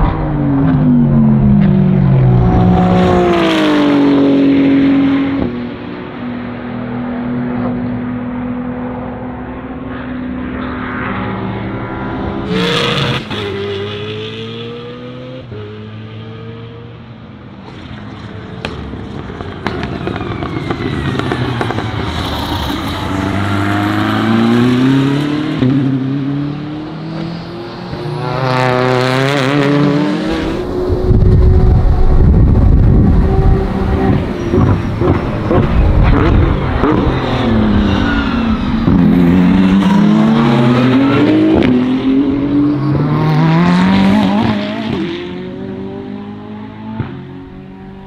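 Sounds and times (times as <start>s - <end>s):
race car engines revving: 0.0s - 48.0s
race car passing close: 17.0s - 48.0s.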